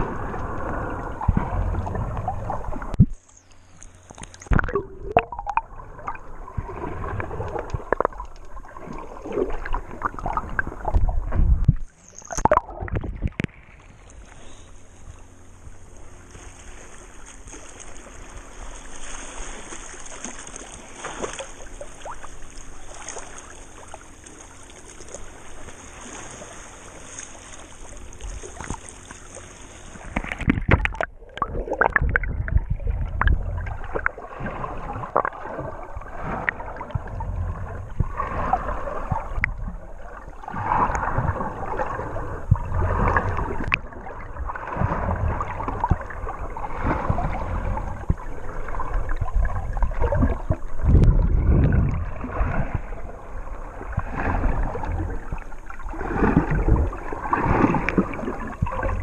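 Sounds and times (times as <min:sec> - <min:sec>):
underwater clicks and bubbles: 0:00.0 - 0:14.3, 0:19.6 - 0:26.4, 0:27.0 - 0:59.0
muffled underwater gurgling: 0:00.0 - 0:15.7, 0:27.9 - 0:59.0
low underwater surges: 0:00.0 - 0:17.2, 0:25.0 - 0:59.0.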